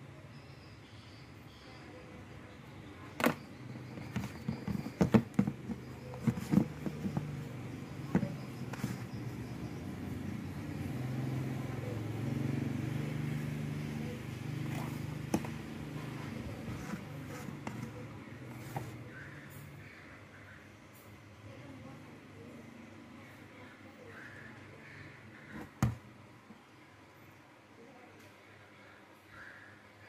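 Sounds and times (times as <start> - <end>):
desk fan humming: 2.2 - 19.5, 24.2 - 26.5
plastic parts clicking and knocking: 3.2 - 9.1.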